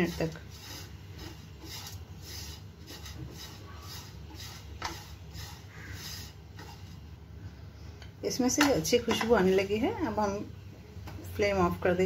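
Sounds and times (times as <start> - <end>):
spatula scraping oats in pan: 0.0 - 7.2.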